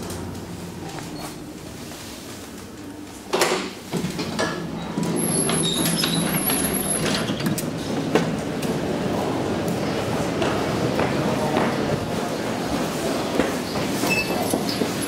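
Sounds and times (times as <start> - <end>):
elevator doors sliding open: 3.2 - 15.0.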